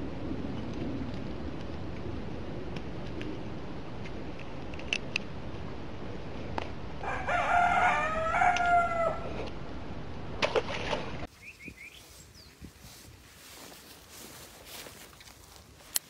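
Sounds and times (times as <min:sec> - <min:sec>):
rooster crowing: 0:07.0 - 0:09.3.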